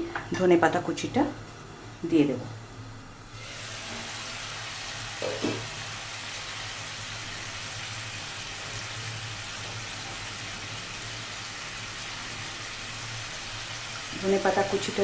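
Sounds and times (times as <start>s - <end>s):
fish sizzling in a pan: 3.4s - 15.0s.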